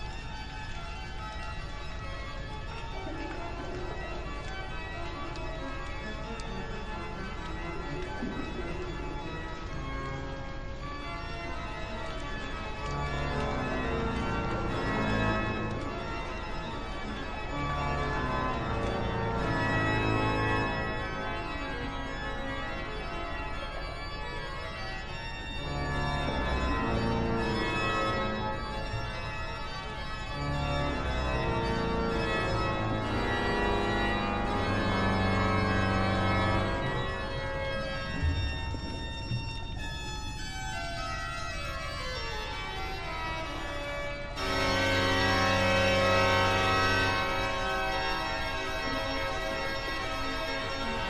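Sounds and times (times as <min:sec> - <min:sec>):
organ music: 0:00.0 - 0:51.0.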